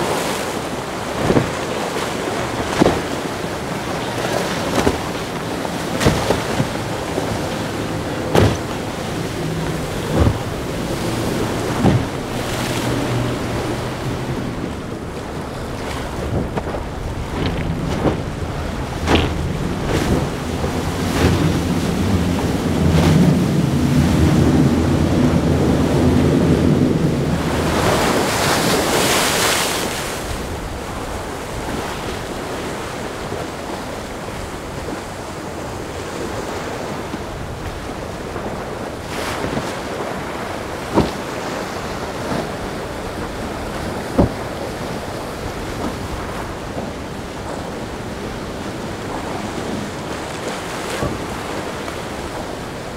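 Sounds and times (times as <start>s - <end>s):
outboard engines droning: 0.0s - 52.9s
spray and surf rushing: 0.0s - 52.9s
waves washing: 0.0s - 52.9s
wind on microphone: 0.0s - 52.9s
sharp knocks: 8.3s - 8.7s, 19.0s - 20.2s.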